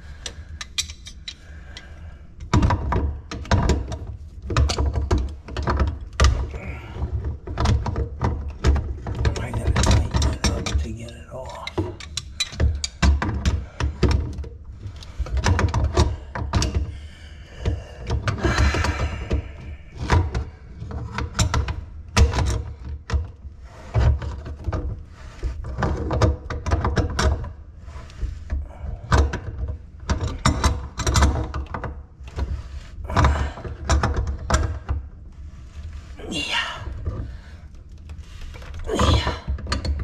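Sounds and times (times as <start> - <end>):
tools and plumbing parts clunking: 0.0 - 40.0.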